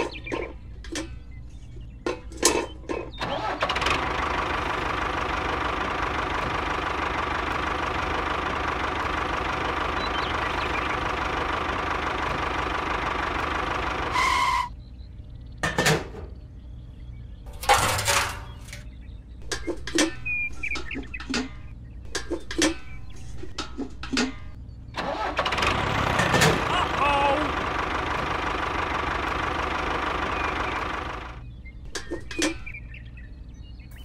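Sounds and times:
small parts clicking and scraping: 0:17.5 - 0:24.6.

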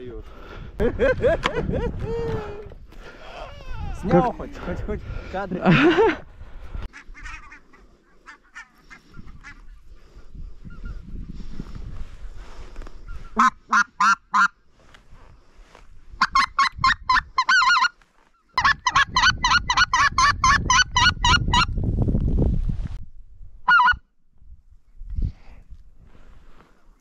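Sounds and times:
geese honking: 0:13.2 - 0:14.5, 0:16.2 - 0:21.7, 0:23.7 - 0:24.0.

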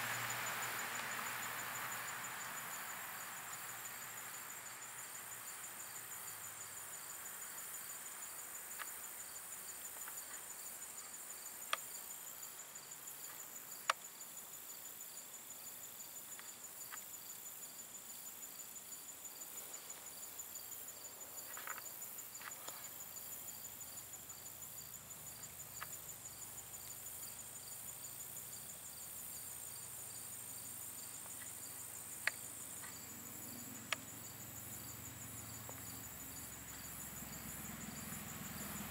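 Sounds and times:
insects trilling: 0:00.0 - 0:38.9.

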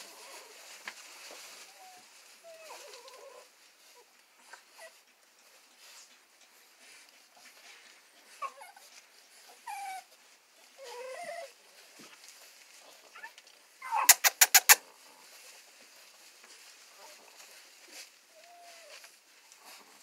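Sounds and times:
puppies whimpering: 0:01.3 - 0:05.1, 0:07.5 - 0:14.8
sharp clicks: 0:14.1 - 0:14.8.

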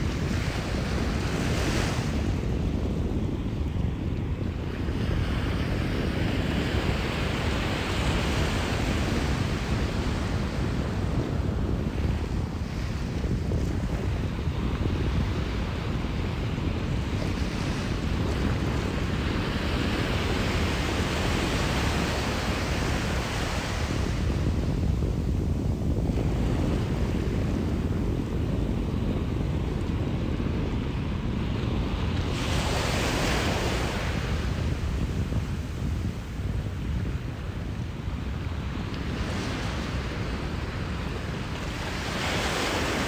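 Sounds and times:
wind rumbling on microphone: 0:00.0 - 0:43.0.

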